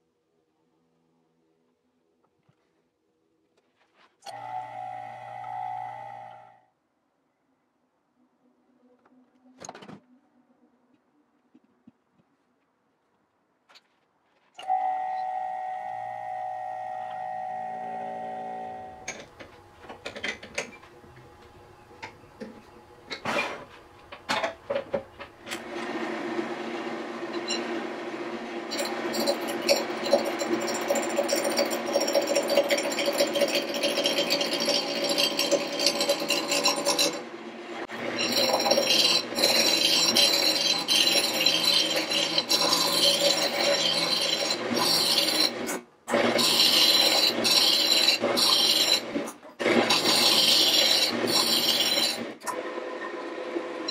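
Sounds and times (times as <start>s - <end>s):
lathe motor hum: 25.6s - 53.8s
turning tool scraping wood: 28.7s - 52.4s.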